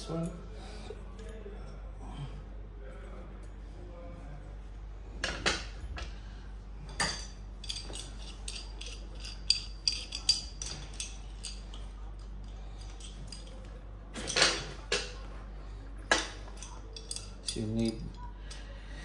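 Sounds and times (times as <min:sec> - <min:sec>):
metal clinks and knocks: 0:06.9 - 0:15.2, 0:16.1 - 0:18.3.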